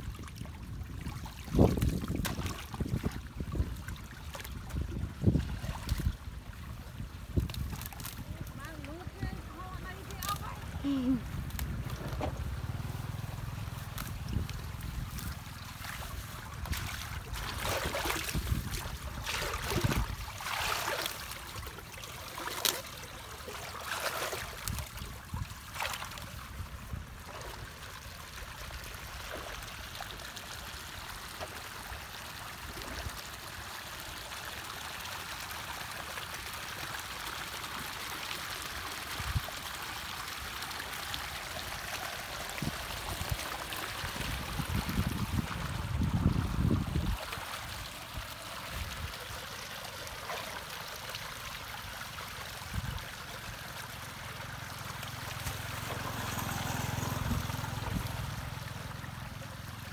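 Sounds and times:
water trickling in a ditch: 0.0 - 59.9
hands splashing in water: 13.9 - 26.3.

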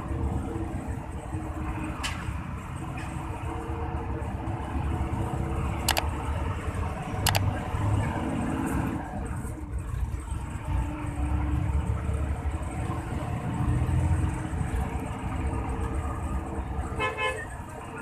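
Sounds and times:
road rumble: 0.0 - 18.0.

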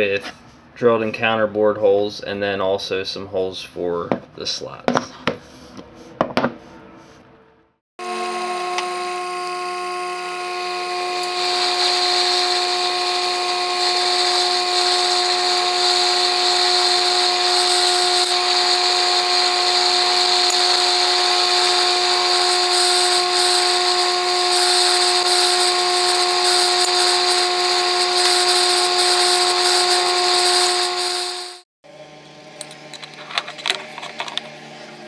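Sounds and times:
milling spindle whine: 8.0 - 31.6
drill bit cutting steel: 8.0 - 31.7.

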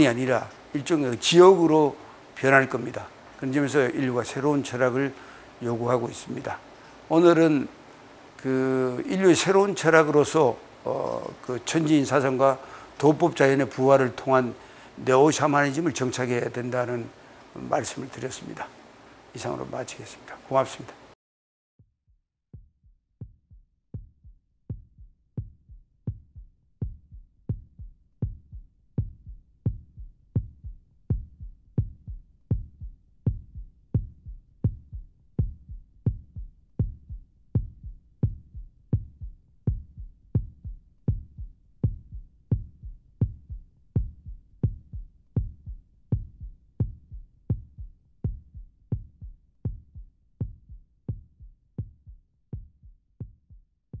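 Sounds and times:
pulsing heartbeat-like beat: 22.0 - 54.0.

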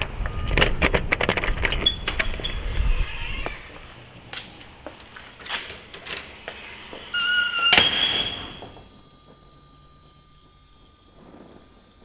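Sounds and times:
keys clicking and rattling: 0.0 - 2.6, 4.2 - 6.4
door squeak: 0.0 - 3.8, 6.9 - 8.9
steel door banging shut: 7.1 - 8.8.

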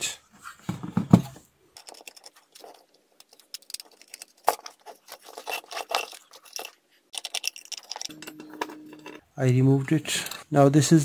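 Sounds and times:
screwdriver clicks and scrapes: 1.8 - 9.2.

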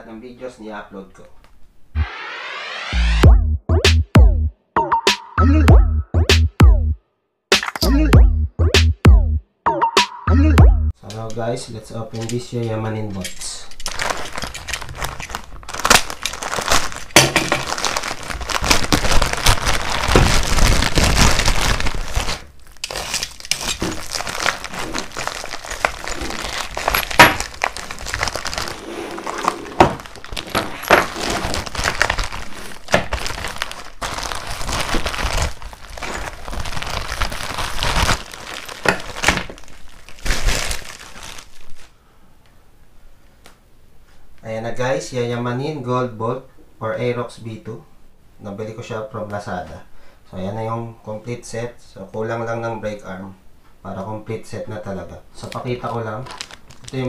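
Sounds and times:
packaging crinkling and snapping: 13.7 - 41.9, 55.4 - 57.0.

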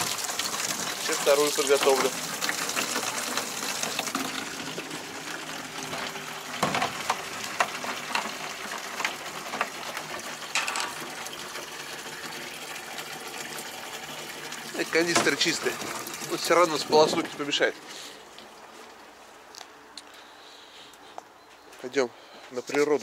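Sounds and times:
water running into a canister: 0.0 - 19.1
canister knocks and clunks: 6.6 - 8.2, 15.1 - 16.0, 16.8 - 17.4.

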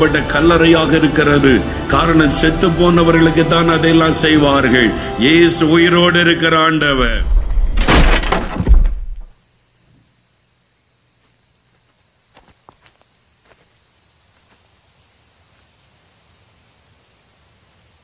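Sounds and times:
cricket chirping: 9.2 - 18.0.

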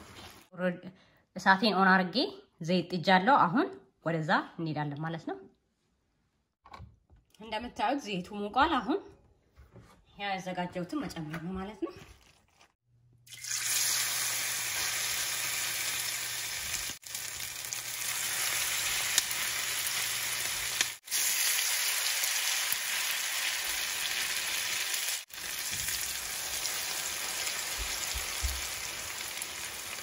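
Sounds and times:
food sizzling in hot oil: 13.3 - 30.0.

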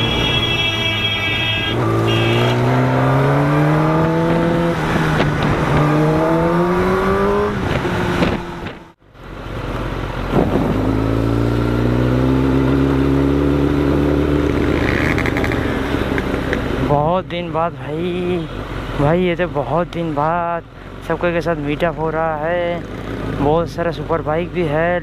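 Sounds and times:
motorcycle engine revving: 1.7 - 9.0, 10.2 - 16.9.

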